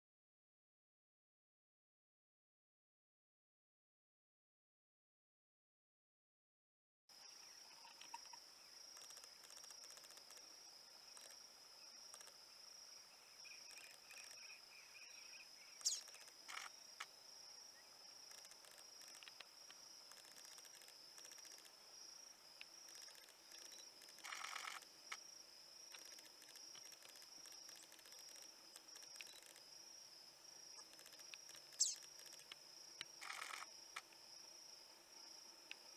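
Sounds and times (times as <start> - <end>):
high-pitched insect drone: 13.4 - 16.8, 22.8 - 29.7, 30.8 - 32.5, 33.2 - 33.8.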